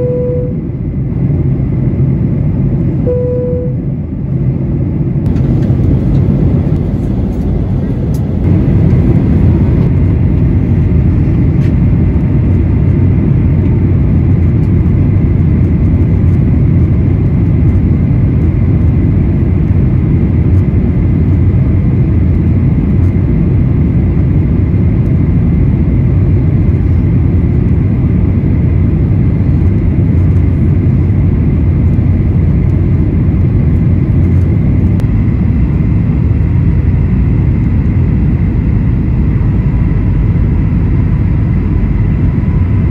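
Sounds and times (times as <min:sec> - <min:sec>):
faint high tone: 0:00.0 - 0:00.6, 0:03.0 - 0:03.8
airliner cabin rush: 0:05.2 - 0:18.0.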